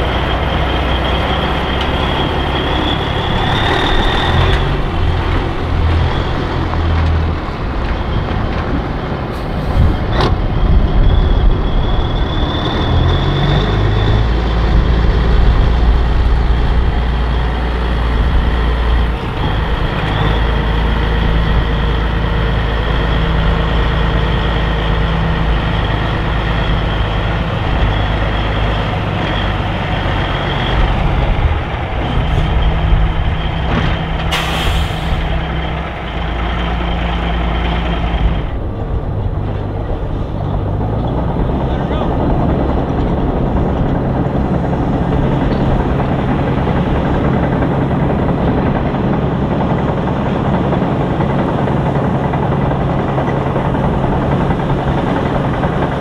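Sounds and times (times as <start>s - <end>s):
truck diesel engine running: 0.0s - 56.0s
high whine: 9.7s - 56.0s
air hiss: 34.3s - 35.3s.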